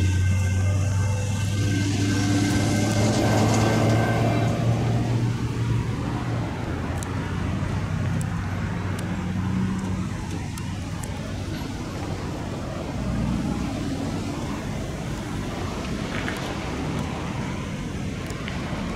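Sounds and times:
freight train moving off: 0:00.0 - 0:06.7
low hum: 0:00.0 - 0:06.8
road traffic rumble: 0:00.0 - 0:18.9.

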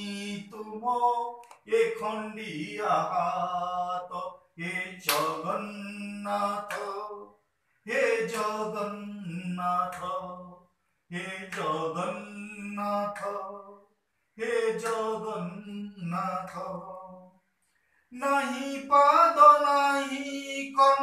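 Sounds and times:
man singing unaccompanied: 0:00.0 - 0:17.5, 0:18.1 - 0:21.0
hand claps: 0:05.0 - 0:05.7, 0:06.6 - 0:07.2, 0:08.2 - 0:08.9, 0:09.8 - 0:10.2, 0:11.4 - 0:11.8, 0:13.0 - 0:13.5, 0:14.8 - 0:15.2.

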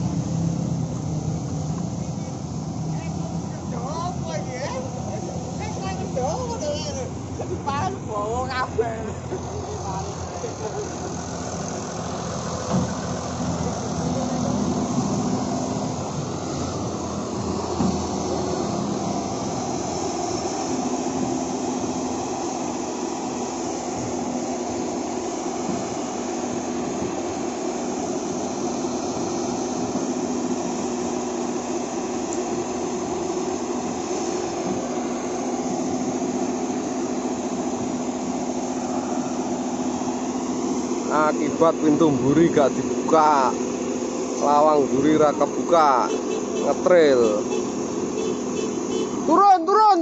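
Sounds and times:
excavator loading soil: 0:00.0 - 0:48.6
heavy machinery diesel engines humming: 0:00.0 - 0:50.0.

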